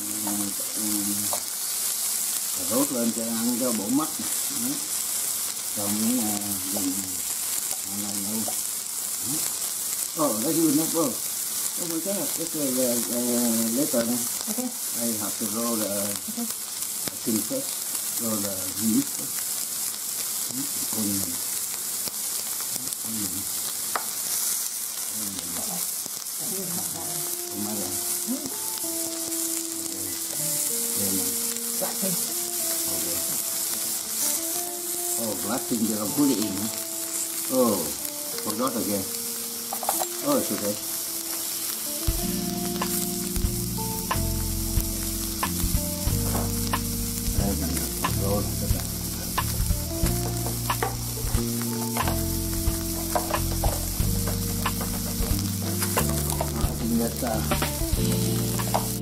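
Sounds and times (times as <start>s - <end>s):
food sizzling on a grill: 0.0s - 59.0s
soft background music: 2.6s - 4.8s, 5.8s - 7.2s, 10.2s - 11.2s, 11.8s - 14.3s, 26.4s - 59.0s.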